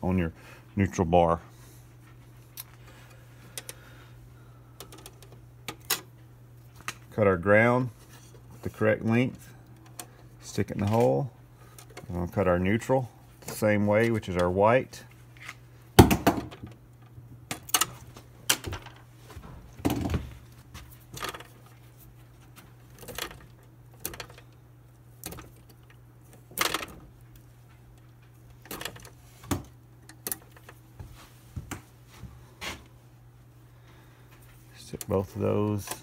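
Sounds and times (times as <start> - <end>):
steady low hum: 0.0 - 36.0
clicks and ticks of wire handling: 2.5 - 3.8, 4.8 - 7.1, 8.2 - 14.6, 16.6 - 31.9, 34.3 - 36.0.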